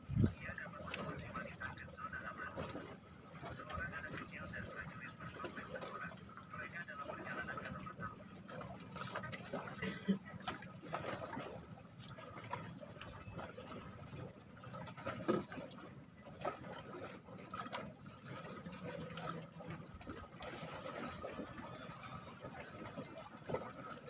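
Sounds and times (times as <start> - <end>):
water lapping against boat hull: 0.0 - 24.0.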